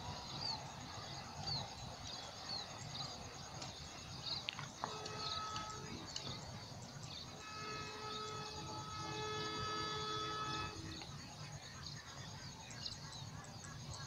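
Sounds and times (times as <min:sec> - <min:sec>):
faint bird chirps: 0:00.0 - 0:14.0
distant locomotive air horn: 0:04.8 - 0:06.4, 0:07.2 - 0:11.1.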